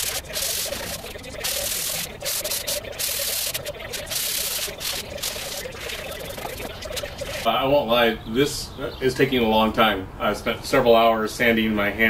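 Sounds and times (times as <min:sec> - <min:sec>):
sandpaper rubbing on metal: 0:00.0 - 0:07.5.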